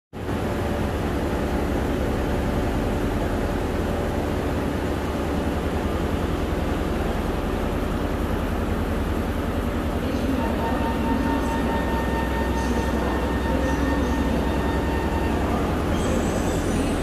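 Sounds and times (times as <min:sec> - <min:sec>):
faint hum: 0:00.2 - 0:17.0
train wheels rumbling: 0:00.2 - 0:17.0.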